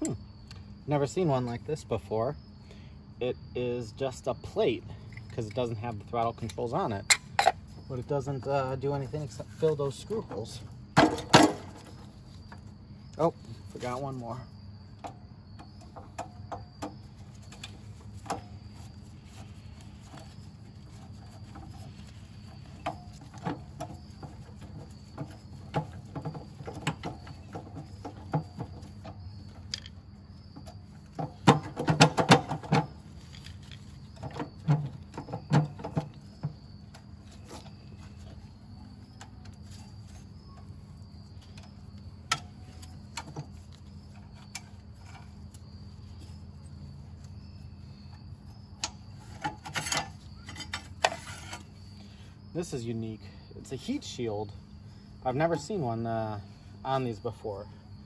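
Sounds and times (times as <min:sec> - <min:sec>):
rattling metal clatter: 0:20.0 - 0:38.2.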